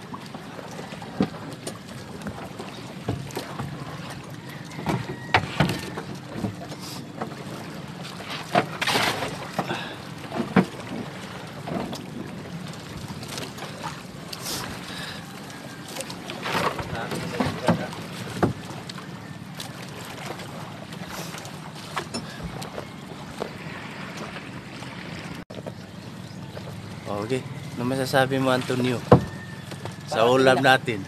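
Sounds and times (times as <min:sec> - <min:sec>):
low engine hum: 0:00.0 - 0:31.0
rush of wind and water: 0:00.0 - 0:31.0
sharp knocks or splashes: 0:01.1 - 0:14.8, 0:16.0 - 0:19.0, 0:28.6 - 0:30.1.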